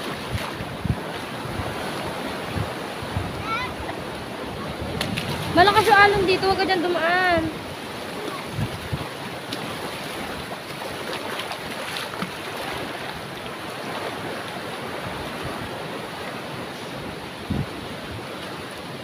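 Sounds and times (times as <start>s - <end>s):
wind buffeting microphone: 0.0s - 13.2s, 17.0s - 18.4s
surf breaking over rocks: 0.0s - 19.0s.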